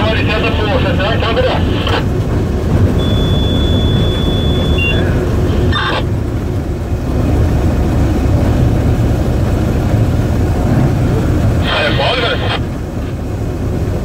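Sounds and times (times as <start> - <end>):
locomotive low rumble: 0.0 - 14.0
thin high beep: 3.0 - 5.1.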